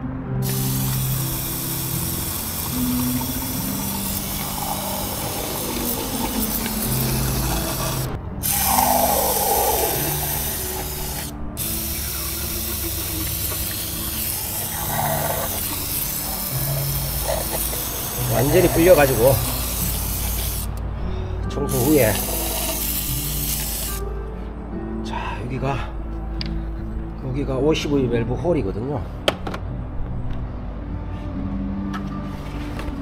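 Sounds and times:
aerosol spray hissing: 0:00.4 - 0:20.8, 0:21.7 - 0:24.0.

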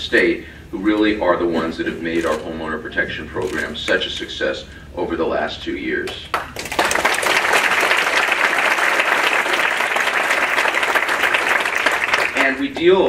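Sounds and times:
audience applauding: 0:06.3 - 0:12.6.

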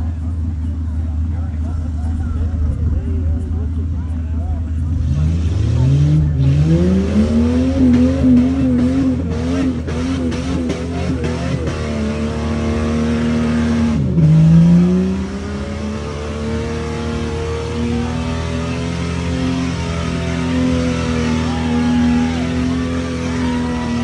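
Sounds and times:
truck engine revving: 0:00.0 - 0:24.0.

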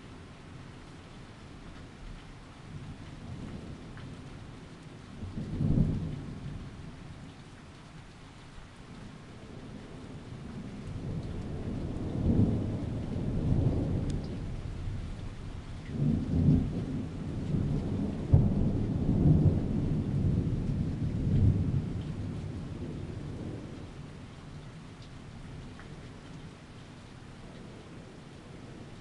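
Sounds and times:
steady rain: 0:00.0 - 0:29.0
rolling thunder: 0:09.5 - 0:24.1.

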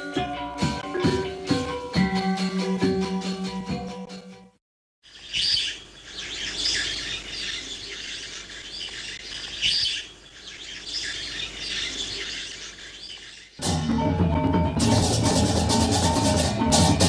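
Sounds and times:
small birds twittering: 0:05.0 - 0:13.6.

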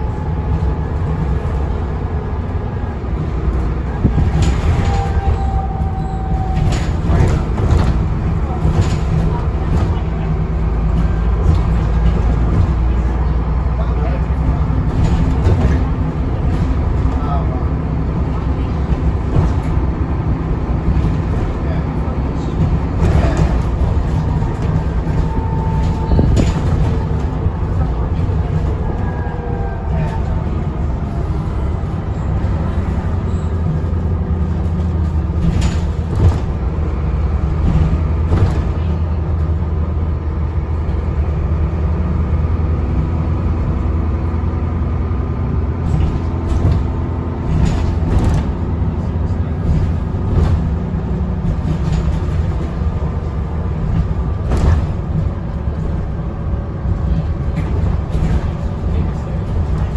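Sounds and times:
bus diesel engine running: 0:00.0 - 0:59.9
body knocks and rattles: 0:06.4 - 0:13.3, 0:22.4 - 0:29.4, 0:32.4 - 0:39.6, 0:45.8 - 0:59.9.

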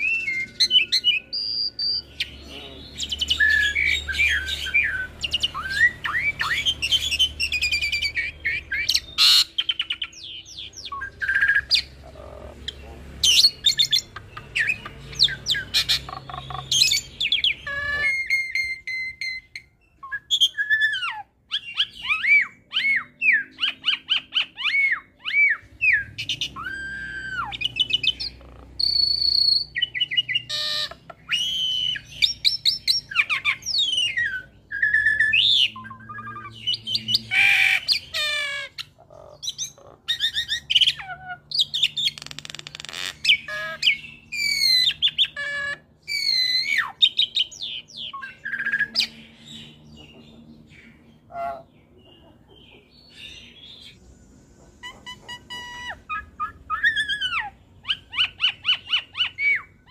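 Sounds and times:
bird singing varied song: 0:00.0 - 0:59.9
harsh rasping bird calls: 0:00.0 - 0:59.9.

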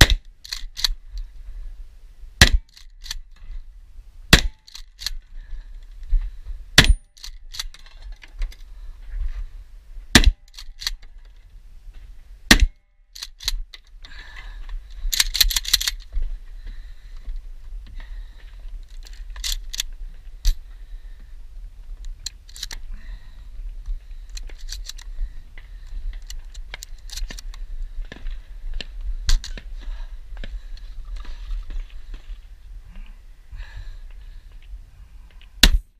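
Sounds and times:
gun mechanism clicks: 0:00.4 - 0:01.0, 0:02.6 - 0:03.3, 0:04.6 - 0:05.2, 0:06.9 - 0:08.6, 0:10.4 - 0:11.1, 0:13.1 - 0:13.9, 0:15.1 - 0:16.1, 0:18.9 - 0:20.6, 0:22.0 - 0:22.8, 0:24.3 - 0:25.1, 0:26.2 - 0:27.6.

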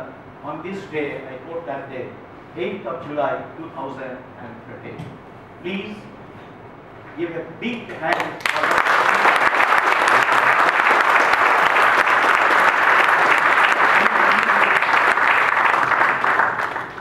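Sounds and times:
audience applauding: 0:08.1 - 0:17.0.

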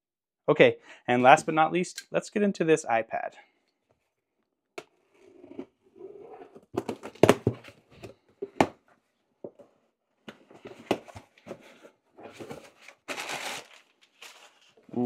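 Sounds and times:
cardboard rustling and scraping: 0:10.4 - 0:14.8.

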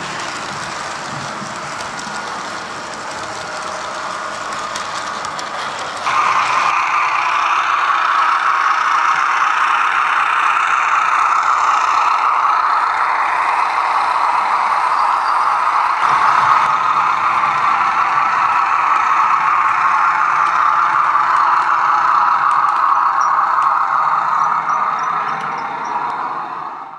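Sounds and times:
model train running past: 0:00.0 - 0:26.9
model diesel engine sound from speaker: 0:05.7 - 0:26.9.

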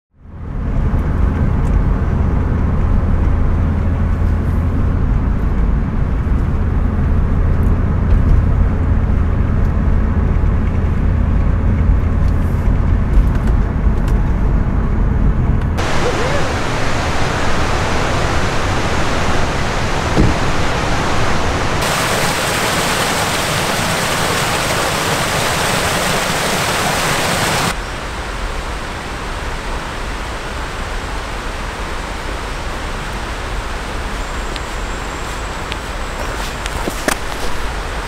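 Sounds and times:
vehicle rumble: 0:00.1 - 0:38.0
creek water rushing: 0:15.8 - 0:38.0.

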